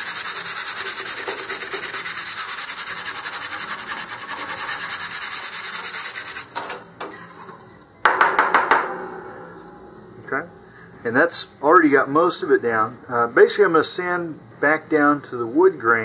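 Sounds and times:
sandpaper rubbing on wood: 0.0 - 6.6.

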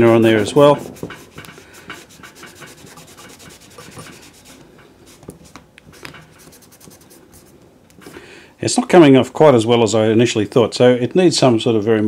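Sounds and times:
cloth scrubbing metal: 0.0 - 7.3.

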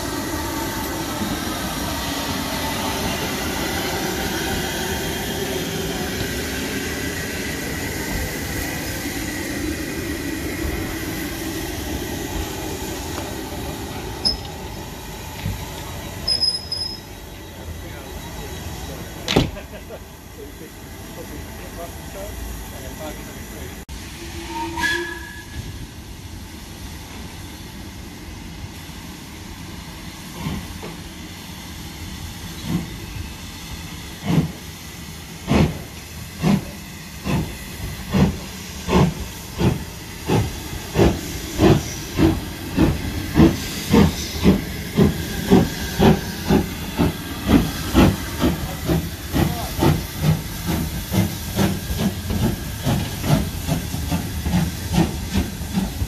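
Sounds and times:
steam hiss: 0.0 - 56.0
steam locomotive whistle: 24.0 - 25.8.

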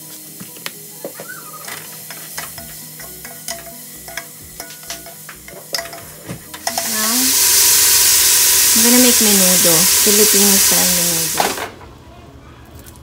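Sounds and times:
pork sizzling in a pot: 0.0 - 11.7
spoon clicking and scraping a pot: 1.7 - 6.9.

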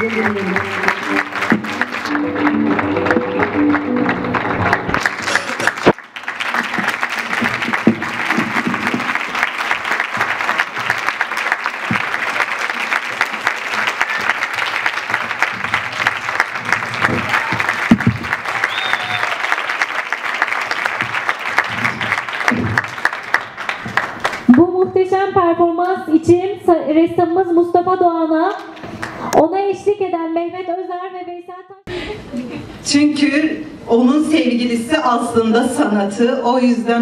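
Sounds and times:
audience applauding: 0.0 - 24.6
guitar music: 0.6 - 5.0.

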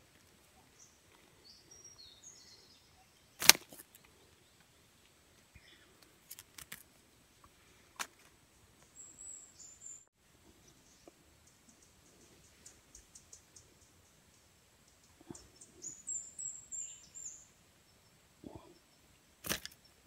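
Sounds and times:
sharp clicks: 3.4 - 4.1, 19.4 - 19.8.

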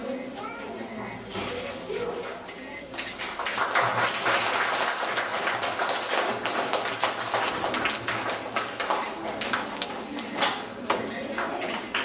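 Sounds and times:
audience applauding: 3.2 - 10.3.

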